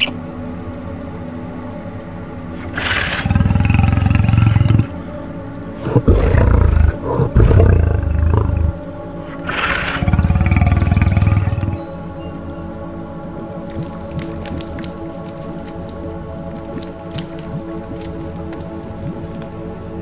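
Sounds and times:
background music: 0.0 - 20.0
large animal roaring: 2.6 - 5.0, 5.8 - 11.8.

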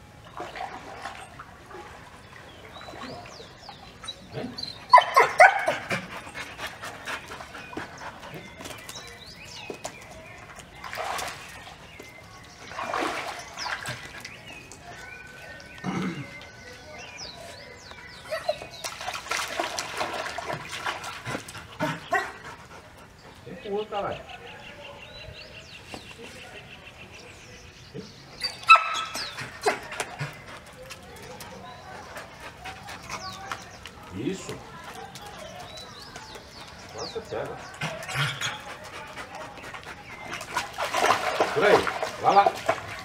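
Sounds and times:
water splashing: 0.0 - 9.1, 9.7 - 15.7, 18.6 - 22.4, 37.6 - 43.0
dog barking: 4.9 - 5.9, 28.6 - 29.8.

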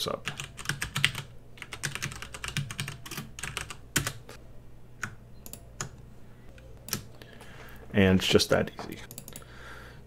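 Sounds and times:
computer keyboard typing: 0.0 - 4.2, 9.0 - 9.5.

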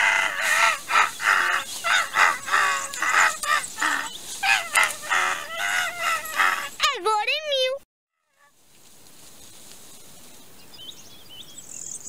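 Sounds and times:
crow cawing: 0.0 - 6.8.

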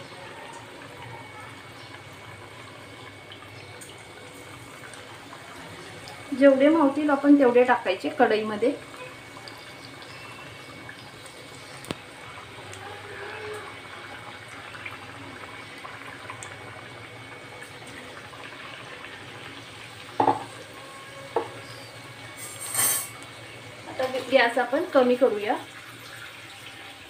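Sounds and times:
deep-frying sizzle and bubbling: 0.0 - 27.0.

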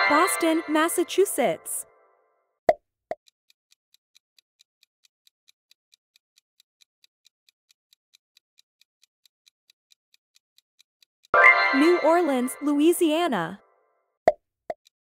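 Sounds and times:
faint clock ticking: 3.2 - 13.6.

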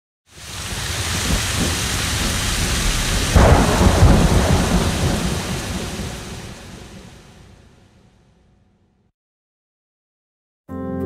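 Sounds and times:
heavy rain: 0.3 - 8.0
thunder rumbling: 0.4 - 8.0.

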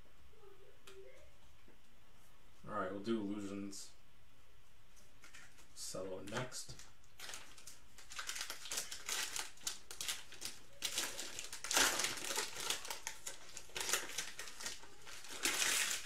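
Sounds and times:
plastic wrapper tearing and crinkling: 6.8 - 16.0.

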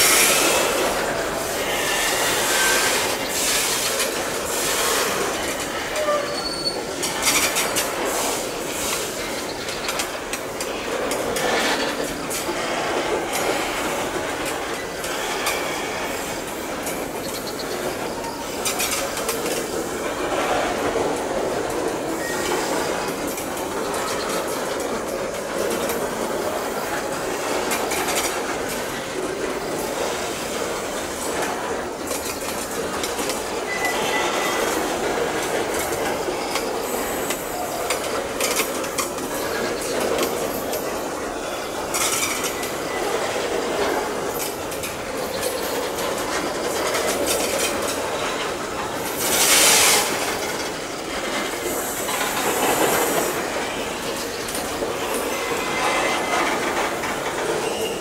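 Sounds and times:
train clicks and clanks: 0.0 - 58.0
train wheels rumbling on rail: 0.0 - 58.0
faint wheel squeal: 5.9 - 7.8, 33.7 - 34.8, 57.6 - 58.0.

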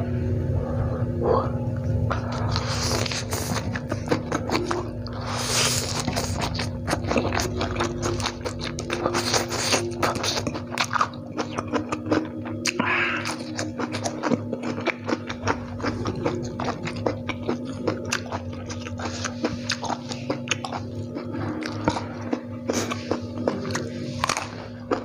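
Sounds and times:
biting raw lettuce: 2.2 - 25.0
wet chewing and lip smacks: 5.8 - 25.0.

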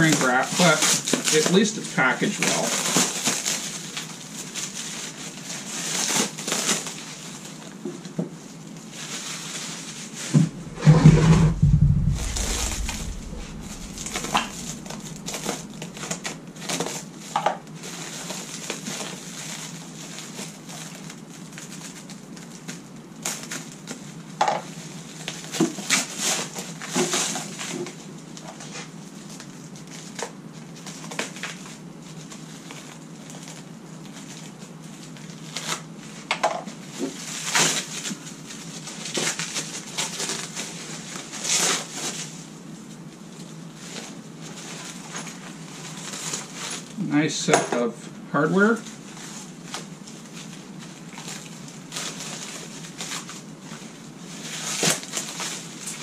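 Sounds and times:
plastic wrap crinkling: 0.0 - 7.7, 49.0 - 56.0
loud deep thump: 10.4 - 15.8.

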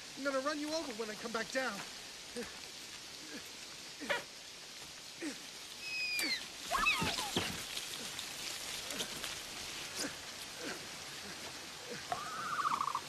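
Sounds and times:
heavy rain: 0.0 - 13.0
short gliding calls: 12.1 - 13.0.

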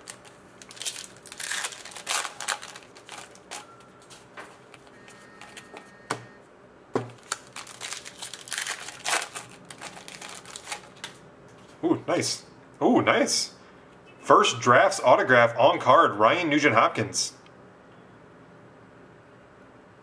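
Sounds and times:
foil pack crinkling: 0.0 - 4.9, 7.0 - 11.2.

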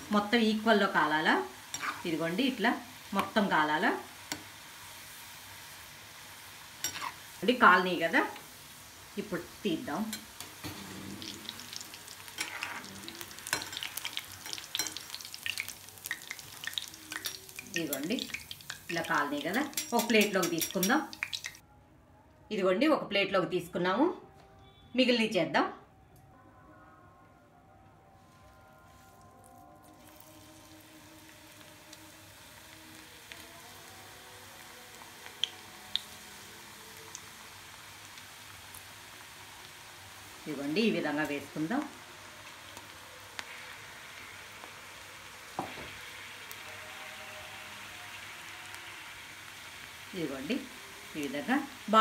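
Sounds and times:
food sizzling in deep-frying oil: 0.0 - 21.6, 28.9 - 52.0
metal scraping and tapping pan: 19.5 - 21.0
sharp pops of frying oil: 19.8 - 21.6.

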